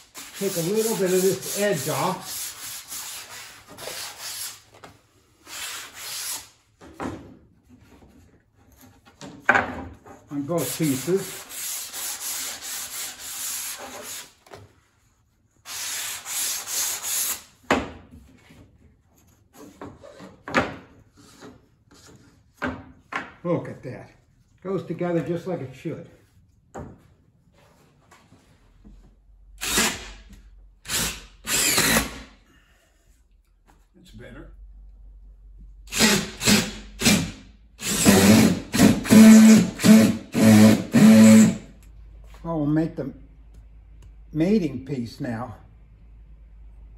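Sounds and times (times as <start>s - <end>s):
sandpaper on wood: 0.0s - 4.7s, 5.5s - 6.5s, 10.3s - 14.4s, 15.6s - 17.5s
cordless drill running: 30.9s - 32.2s, 35.9s - 41.6s.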